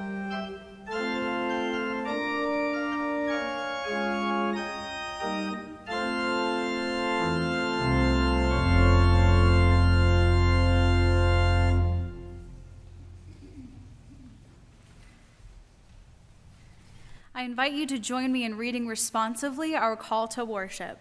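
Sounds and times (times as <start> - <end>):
church organ chords: 0.0 - 14.3
deep organ pedal bass: 0.0 - 14.4.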